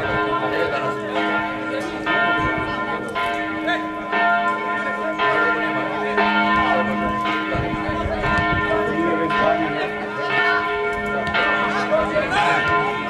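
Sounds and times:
church bells ringing: 0.0s - 13.0s.

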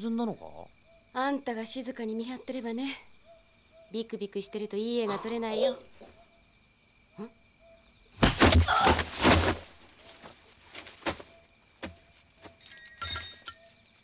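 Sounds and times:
heavy thuds and rustling: 8.2s - 12.6s.

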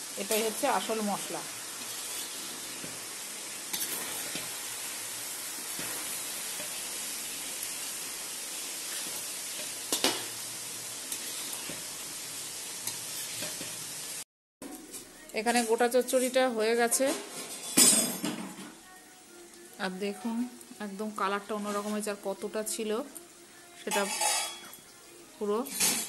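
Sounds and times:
vegetables sizzling in a pan: 0.0s - 26.0s
metal spatula scraping: 1.8s - 3.0s, 3.7s - 4.6s, 11.1s - 11.9s, 12.8s - 13.7s, 23.9s - 24.8s.

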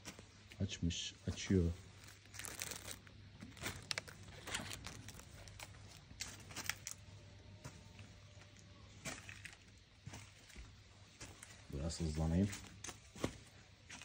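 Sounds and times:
faint low hum: 0.0s - 14.0s
plastic bags and leaves rustling: 0.0s - 14.0s
footsteps: 7.6s - 11.8s, 12.4s - 14.0s.

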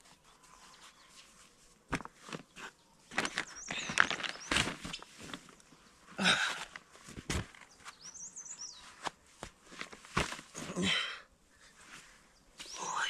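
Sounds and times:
bird chirping: 2.5s - 5.2s, 7.6s - 9.0s, 12.3s - 13.0s.

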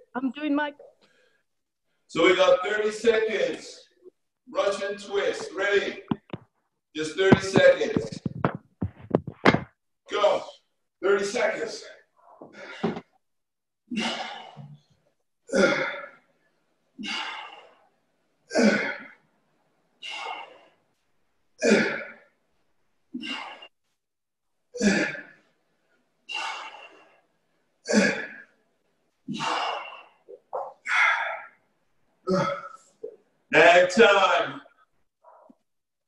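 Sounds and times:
man breathing forcefully: 20.0s - 20.7s, 26.3s - 27.2s, 29.3s - 30.2s.

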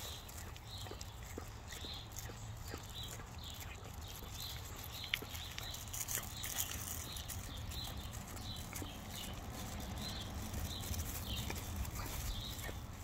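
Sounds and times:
dog licking plastic film: 0.0s - 13.0s.

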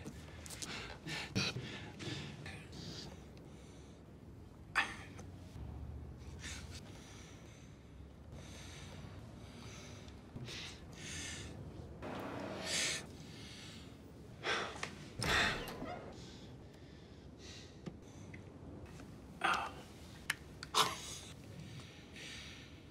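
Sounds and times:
person breathing: 12.6s - 18.4s, 21.1s - 22.9s.

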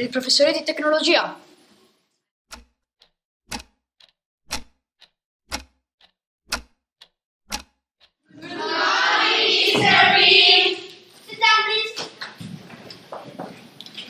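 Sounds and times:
clock ticking: 2.5s - 8.3s
loud dense sound: 8.3s - 10.8s.

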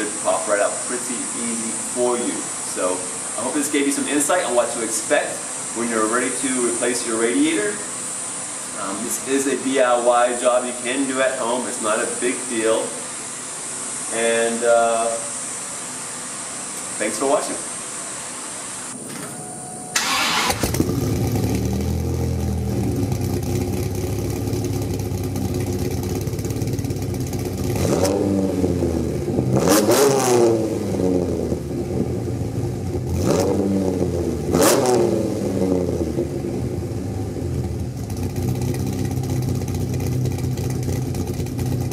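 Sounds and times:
car engine idling and revving: 20.0s - 41.9s.

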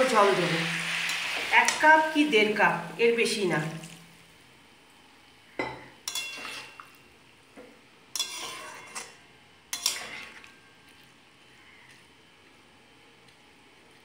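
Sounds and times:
metal spatula scraping a pan: 6.0s - 6.8s, 8.1s - 10.6s.

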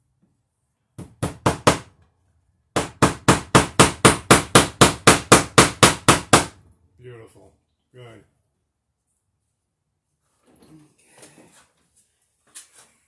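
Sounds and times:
hammer striking staple into wood: 2.8s - 6.6s.

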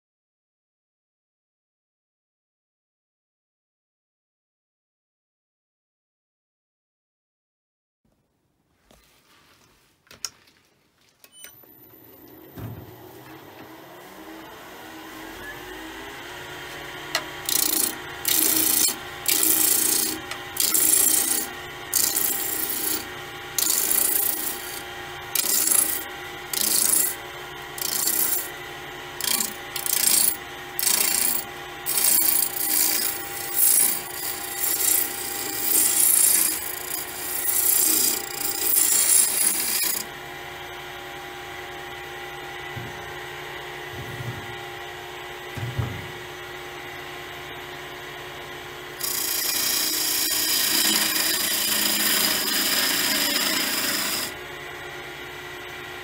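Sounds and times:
wood lathe humming: 13.1s - 42.6s, 46.1s - 55.2s
gouge scraping spinning wood: 16.6s - 40.1s, 49.0s - 54.4s.

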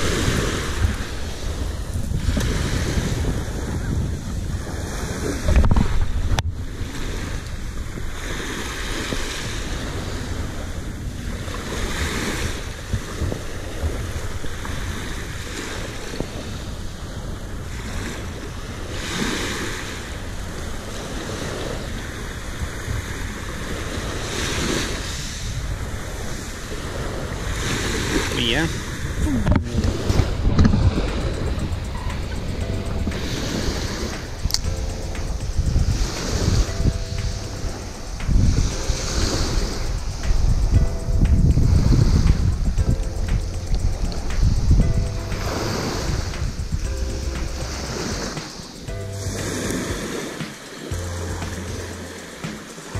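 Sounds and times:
waves breaking on gravel beach: 0.0s - 34.7s, 47.7s - 51.0s
wind rumbling on microphone: 0.0s - 52.9s.

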